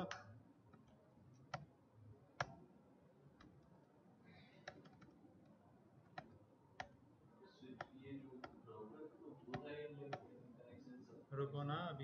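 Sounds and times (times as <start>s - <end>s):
computer mouse clicks: 0.0s - 1.7s, 2.4s - 2.6s, 3.4s - 3.7s, 4.6s - 7.0s.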